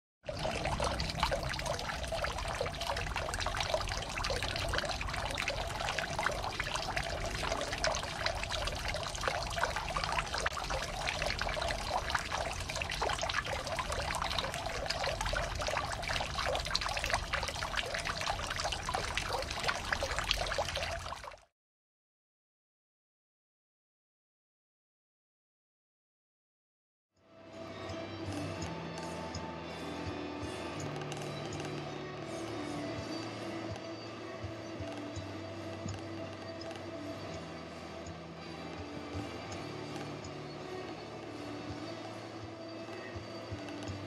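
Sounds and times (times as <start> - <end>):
water trickling and splashing: 0.3 - 21.5.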